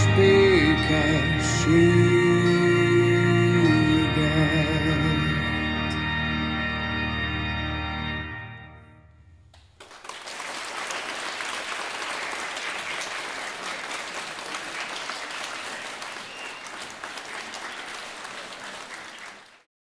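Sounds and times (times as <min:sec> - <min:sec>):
audience applauding: 0:09.6 - 0:19.7.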